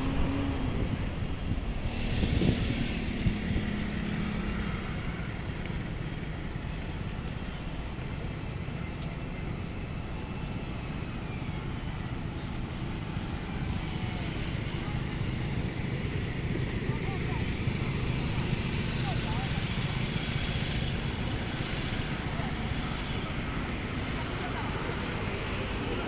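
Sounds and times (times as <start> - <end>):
low engine hum: 0.0 - 26.0
rumble of traffic: 0.0 - 26.0.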